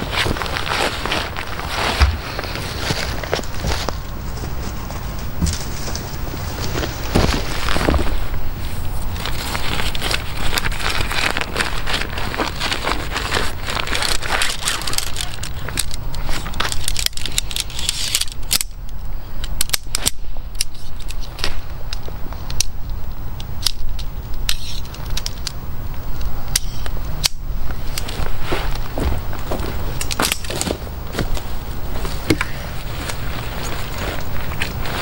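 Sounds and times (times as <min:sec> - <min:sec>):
nylon fabric rustling: 0:00.0 - 0:15.7, 0:27.7 - 0:35.0
dry leaves crackling underfoot: 0:00.0 - 0:35.0.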